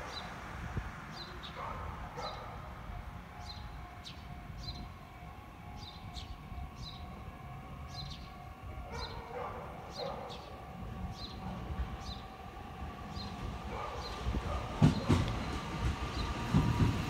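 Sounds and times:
dog barking: 1.6 - 2.7, 8.9 - 10.4, 13.7 - 15.0
birds chirping: 3.3 - 17.0.

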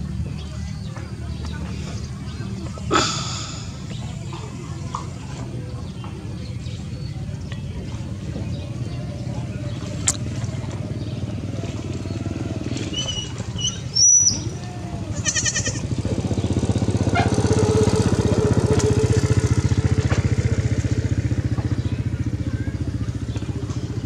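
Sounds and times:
small engine running: 14.3 - 24.0.

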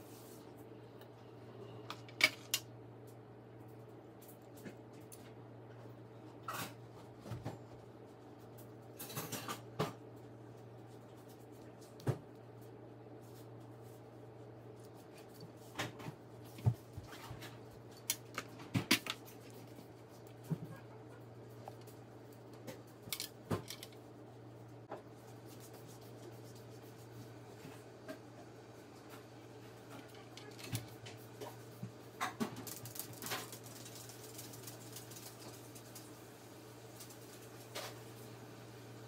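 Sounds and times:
low steady hum: 0.0 - 39.0
small parts and tools clicking: 23.0 - 24.0.

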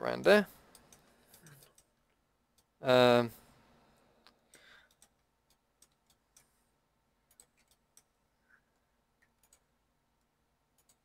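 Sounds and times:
mouse and keyboard clicks: 7.3 - 8.1.

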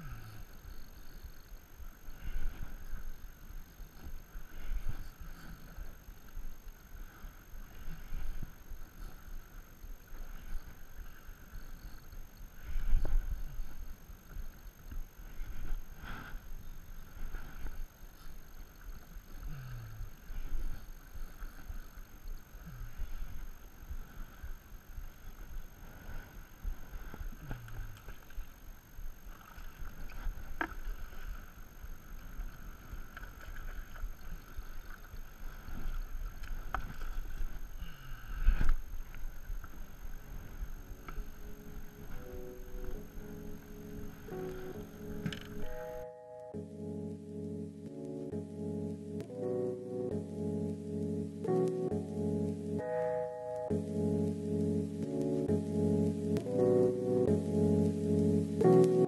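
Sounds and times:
water lapping against boat hull: 3.9 - 45.9.

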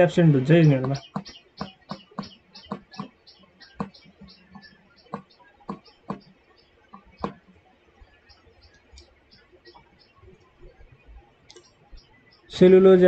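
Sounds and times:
stylus tapping on tablet screen: 0.8 - 8.1.

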